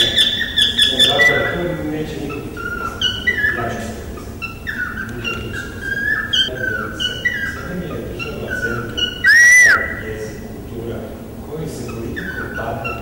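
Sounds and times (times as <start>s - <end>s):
high whistled tones: 9.2s - 10.0s.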